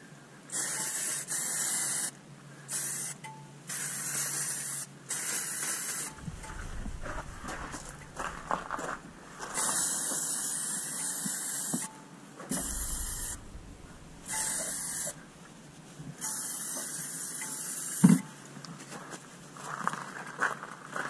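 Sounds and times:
aerosol spray hissing: 0.5 - 2.1, 2.7 - 6.2, 9.6 - 11.8, 12.5 - 13.4, 14.3 - 15.2, 16.2 - 18.0
sharp knock: 6.1 - 9.7, 12.5 - 15.5.

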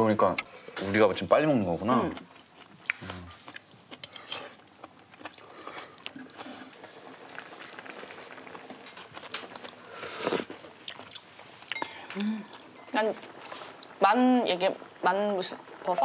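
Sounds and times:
pot simmering: 0.0 - 16.0
chewing: 1.9 - 12.7.

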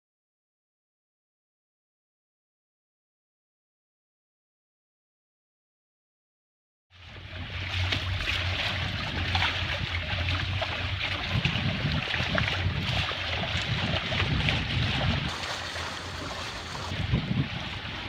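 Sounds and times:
water splashing along hull: 6.9 - 18.0
low steady rumble: 7.0 - 18.0.

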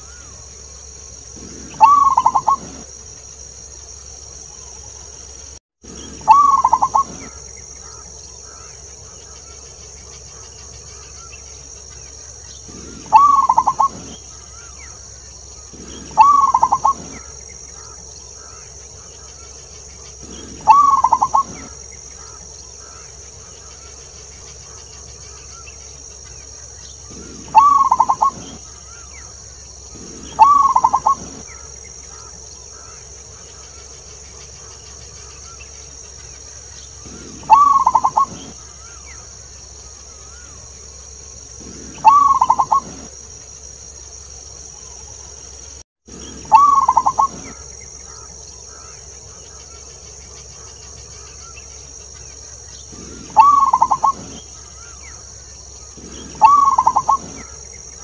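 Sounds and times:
steady high hiss: 0.0 - 58.0
dove cooing: 1.4 - 2.9, 6.0 - 8.7, 12.7 - 14.9, 15.6 - 18.7, 20.2 - 23.1, 27.0 - 29.1, 29.9 - 32.9, 37.0 - 39.0, 41.6 - 43.1, 46.3 - 48.8, 52.9 - 55.0, 55.9 - 57.6.

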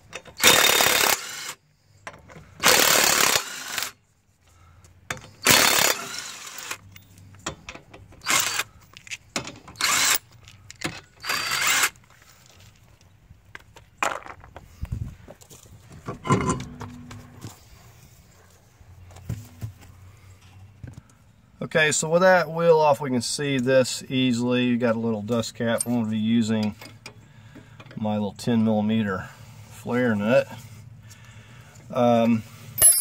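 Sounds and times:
power tool loosening lug nuts: 0.0 - 4.0, 5.1 - 12.0.

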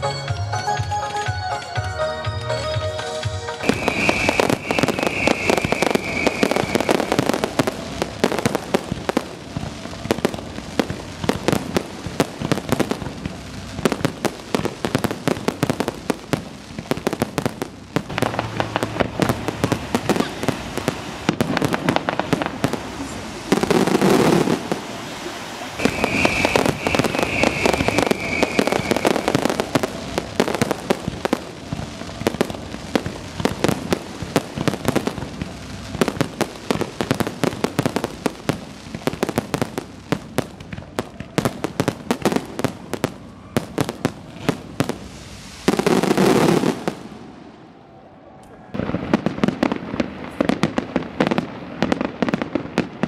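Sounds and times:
fireworks bangs and crackling: 0.0 - 47.8, 48.5 - 53.0
firework high whistle: 2.5 - 10.2, 18.1 - 37.2, 41.0 - 49.7.

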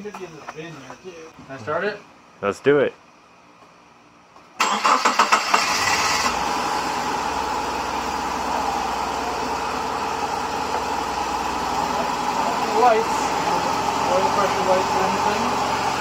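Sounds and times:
car engine cranking and idling rough: 4.6 - 16.0.

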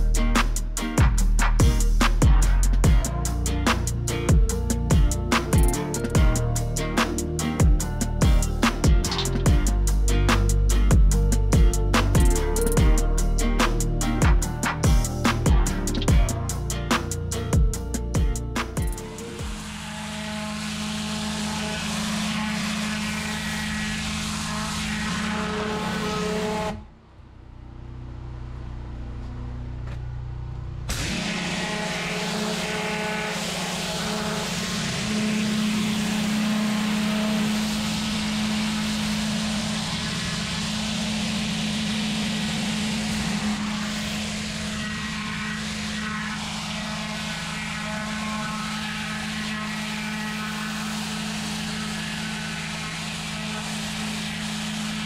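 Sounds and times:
pressure washer humming: 30.9 - 55.0.

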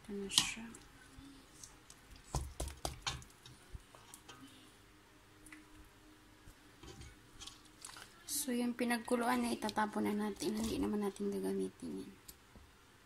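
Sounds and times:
utensil tapping cooking pot: 2.3 - 3.4.

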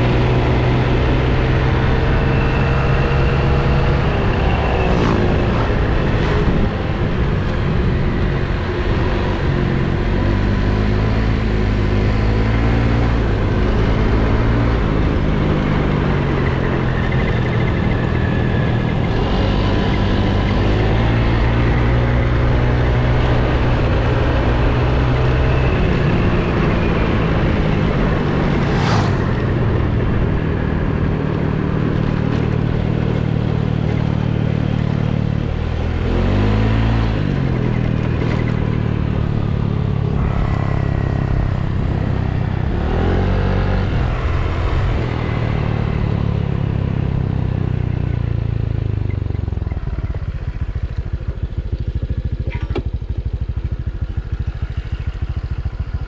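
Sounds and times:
wind noise: 0.0 - 34.4
motor scooter engine: 0.0 - 56.0.

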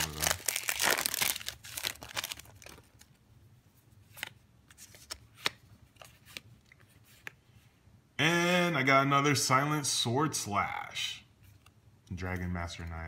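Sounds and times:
foil wrapper crinkling: 0.0 - 3.1
trading cards flipped by hand: 4.1 - 7.4.

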